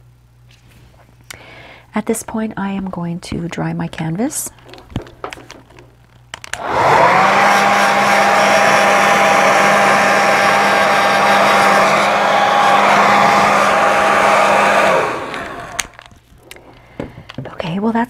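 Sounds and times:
hairdryer blowing: 0:06.5 - 0:16.7.

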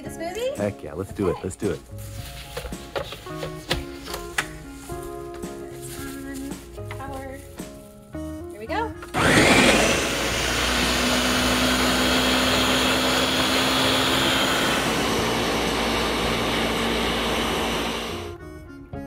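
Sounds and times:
blender whirring: 0:09.1 - 0:18.4.

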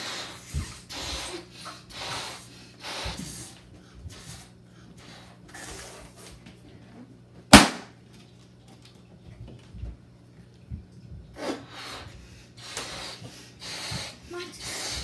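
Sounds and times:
balloon popping bang: 0:07.5 - 0:07.9.

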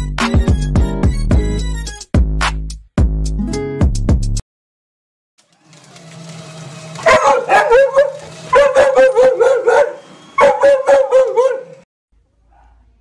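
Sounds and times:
paper shredder motor humming: 0:05.4 - 0:10.5
small dog yapping: 0:07.0 - 0:11.8.

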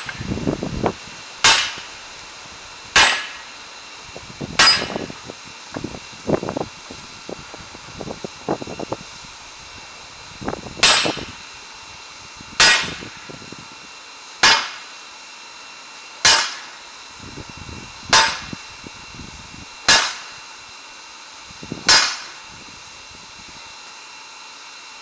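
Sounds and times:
hammer clanging on metal: 0:04.6 - 0:05.0.

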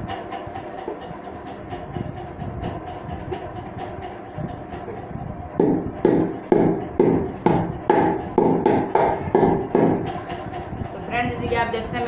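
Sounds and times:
knocks on hollow metal tube: 0:05.6 - 0:10.1.

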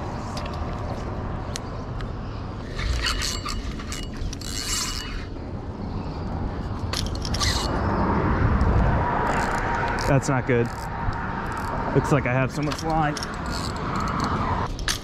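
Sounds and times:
fishing reel clicking: 0:02.7 - 0:05.2, 0:11.5 - 0:11.7, 0:12.8 - 0:15.0.

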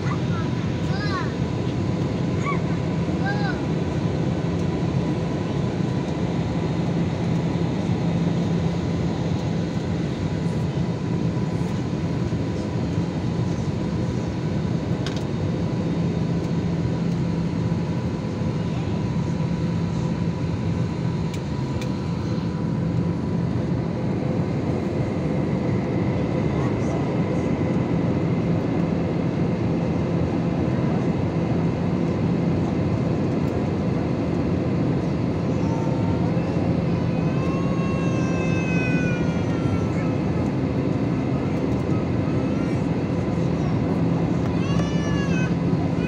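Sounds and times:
jet engine drone: 0:00.0 - 0:46.0.

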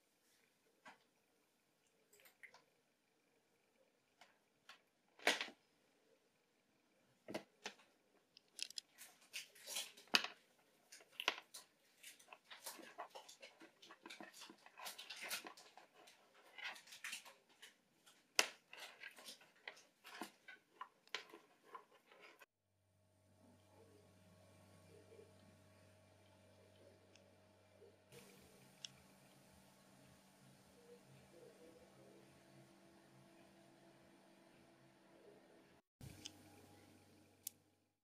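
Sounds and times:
faint steady hum: 0:00.0 - 0:09.5, 0:22.8 - 0:37.9.

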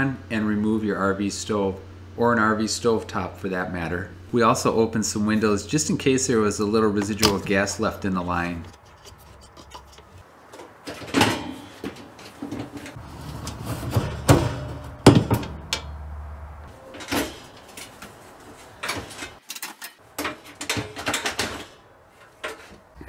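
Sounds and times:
metal stove parts handled: 0:06.9 - 0:16.0, 0:16.7 - 0:23.0
sliding window pushed open: 0:12.9 - 0:14.7.

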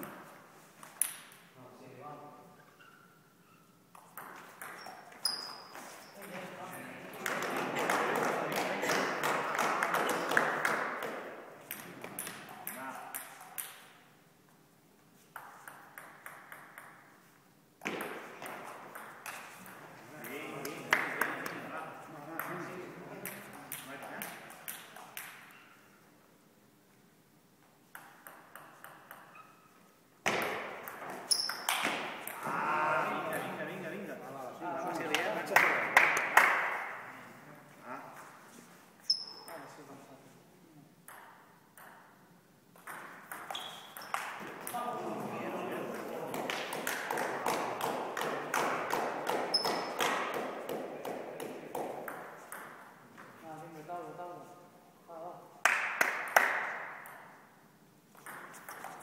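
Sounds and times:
high squeak: 0:02.6 - 0:03.8, 0:04.8 - 0:06.2, 0:39.1 - 0:39.5
table tennis balls clicking: 0:03.9 - 0:05.2, 0:15.3 - 0:17.2, 0:27.8 - 0:29.5, 0:41.0 - 0:44.8, 0:46.4 - 0:53.0, 0:58.1 - 0:59.0.

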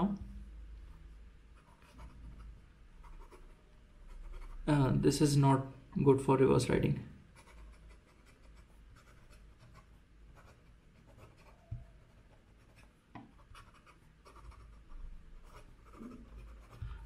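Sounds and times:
pen nib scratching on paper: 0:01.6 - 0:03.5, 0:04.1 - 0:04.7, 0:07.3 - 0:17.0.

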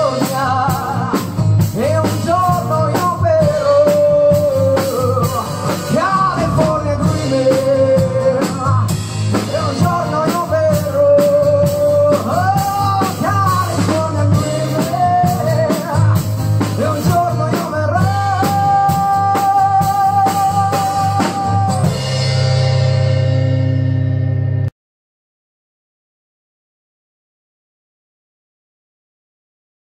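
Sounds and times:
person singing lead melody: 0:00.0 - 0:22.5
drum kit: 0:00.0 - 0:24.7
electric guitar: 0:00.0 - 0:24.7.

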